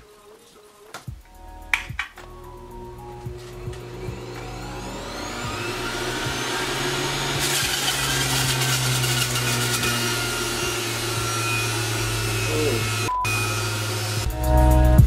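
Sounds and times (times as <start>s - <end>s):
juicer motor hum: 2.6s - 14.4s
rasping whir of leaves shredded: 3.3s - 14.3s.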